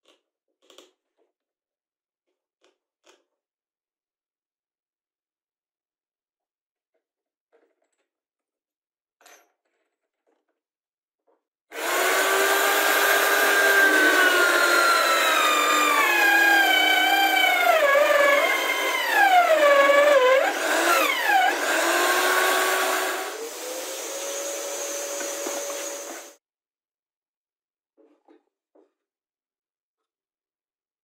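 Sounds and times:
drill press boring through board: 11.7s - 26.4s.

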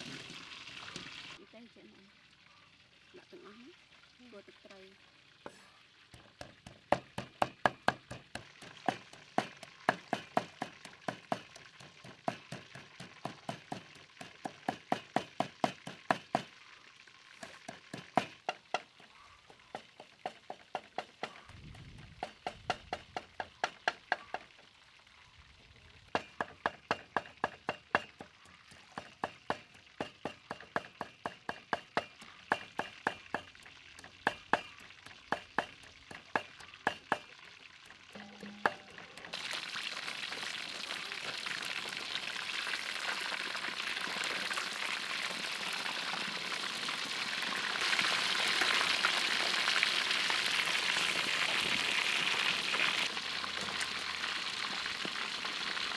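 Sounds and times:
cleaver chopping on wooden block: 6.4s - 11.6s, 12.2s - 16.5s, 26.2s - 28.3s, 28.9s - 33.5s.

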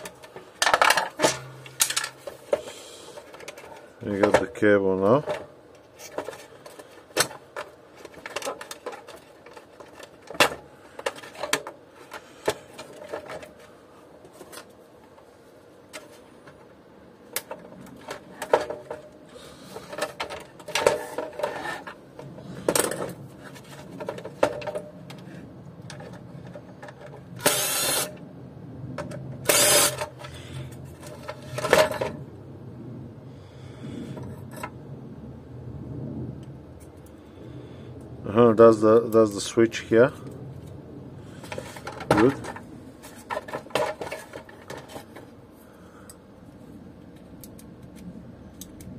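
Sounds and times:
plastic parts clicking and rattling: 0.0s - 15.2s, 15.9s - 28.2s, 29.0s - 32.2s, 41.4s - 45.4s.

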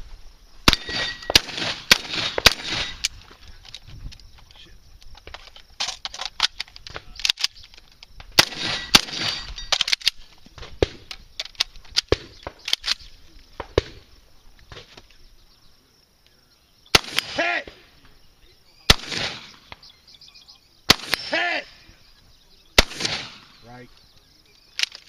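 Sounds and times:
shotgun firing: 0.6s - 3.1s, 8.4s - 9.6s, 16.9s - 17.8s, 18.9s - 19.8s, 20.9s - 21.6s, 22.8s - 23.6s.

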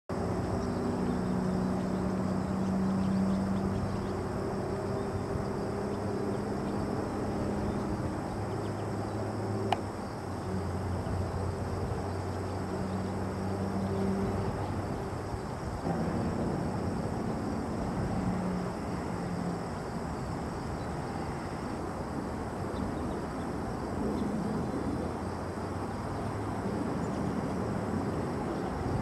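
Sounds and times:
low engine-like drone: 0.1s - 29.0s
low hum: 0.2s - 23.2s.

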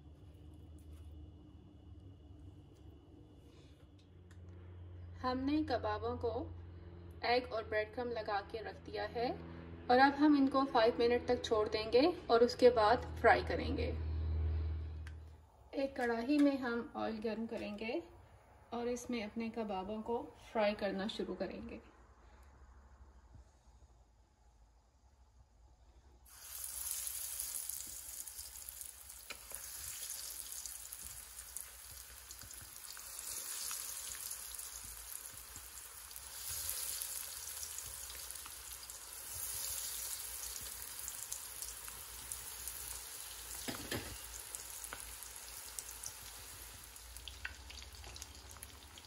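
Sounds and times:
food sizzling in hot oil: 26.3s - 49.0s.

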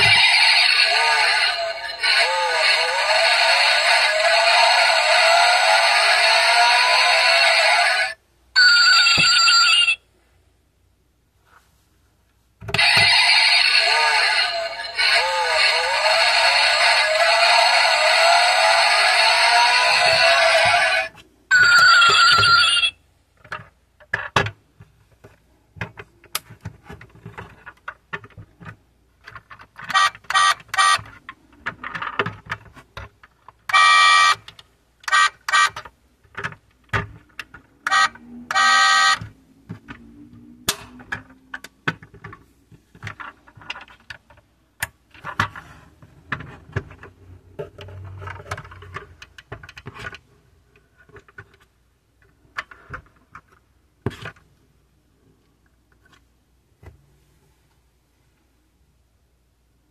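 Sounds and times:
electronic sound effects: 0.0s - 8.2s, 12.8s - 21.1s.

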